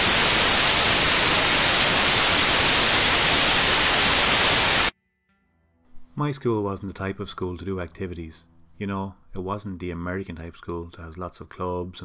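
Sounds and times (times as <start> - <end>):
television static hiss: 0.0 - 4.9.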